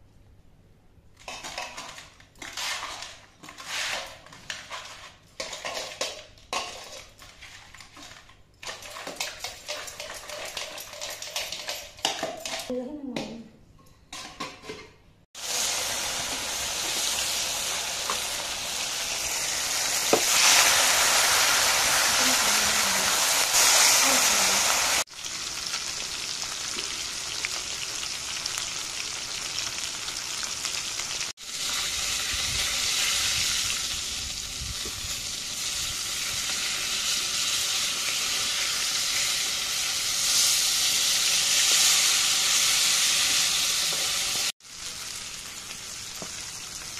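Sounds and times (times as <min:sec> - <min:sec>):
fish deep-frying in oil: 0:15.4 - 0:46.9.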